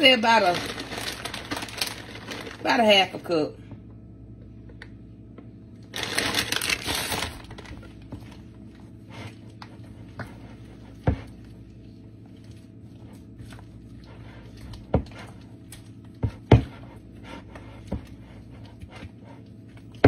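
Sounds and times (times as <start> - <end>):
plastic bag crinkling: 0.0 - 2.9, 5.8 - 8.1
steady low hum: 0.0 - 20.0.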